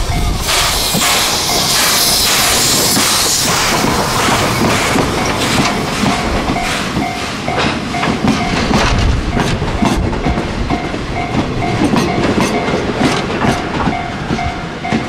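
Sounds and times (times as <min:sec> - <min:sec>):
steam hissing: 0:00.0 - 0:08.0
train wheels clacking over rail joints: 0:00.0 - 0:15.0.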